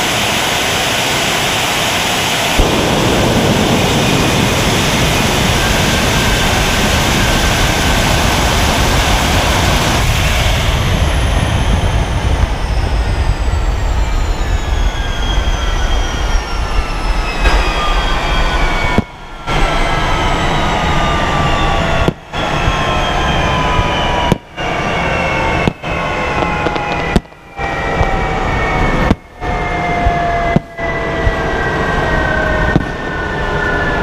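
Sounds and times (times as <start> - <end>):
jet engine roaring: 0.0 - 34.0
jet engine whine falling in pitch: 0.0 - 34.0
sharp crack: 2.6 - 10.1.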